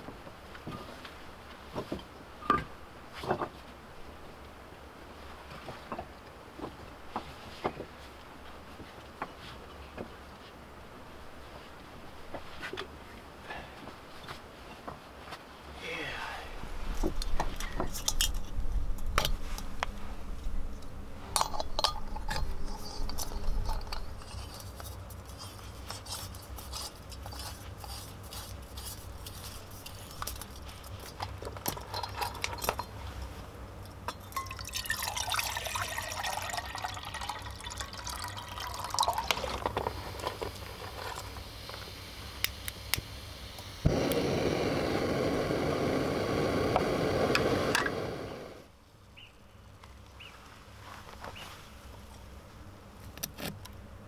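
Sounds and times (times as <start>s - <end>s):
metal clicks and scrapes: 21.4s - 33.0s
gas burner hissing: 39.6s - 48.7s
burner ignition click: 41.4s - 48.6s.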